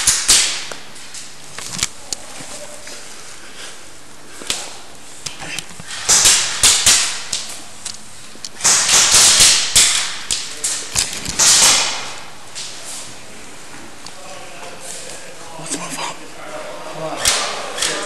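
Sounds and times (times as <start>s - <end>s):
pellets striking wooden barriers: 0.0s - 1.1s, 5.8s - 7.6s, 8.6s - 12.8s
airsoft gun firing: 8.6s - 10.2s, 11.4s - 12.2s.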